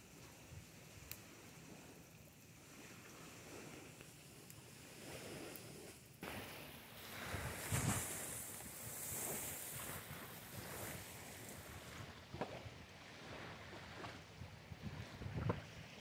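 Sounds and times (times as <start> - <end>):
outdoor noise rush: 3.4 - 12.1
wind gusting on microphone: 6.2 - 16.0.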